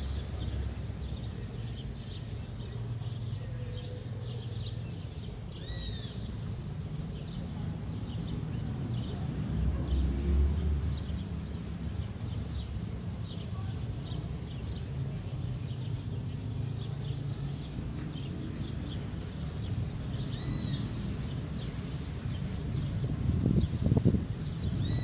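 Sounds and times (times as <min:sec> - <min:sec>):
small birds chirping: 0:00.0 - 0:25.0.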